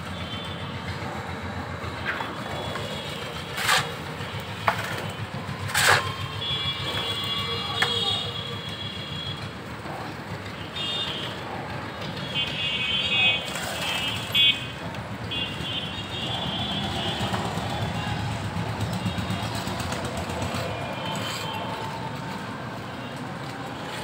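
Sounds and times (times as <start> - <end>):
shovel scraping wet mortar: 3.4 - 4.0, 5.7 - 6.2.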